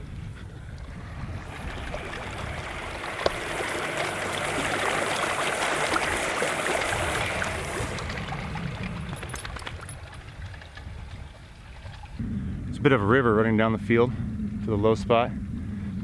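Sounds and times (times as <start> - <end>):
water hissing from a leak: 1.4 - 9.3.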